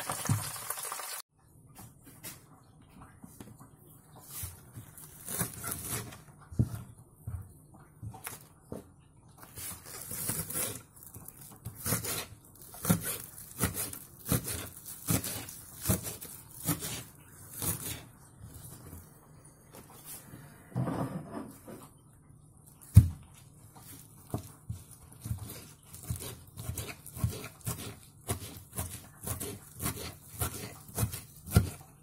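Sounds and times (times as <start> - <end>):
knife chopping on cutting board: 11.6 - 18.0, 24.3 - 31.9.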